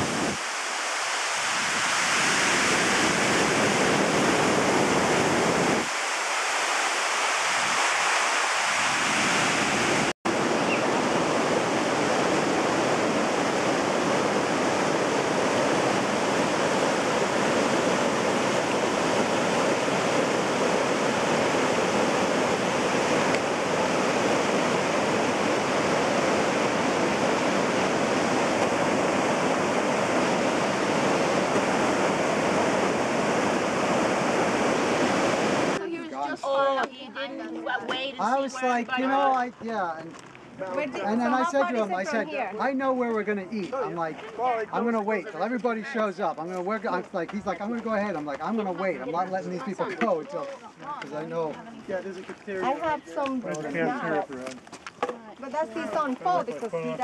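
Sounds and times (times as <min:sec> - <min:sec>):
river water rushing: 0:00.0 - 0:36.2.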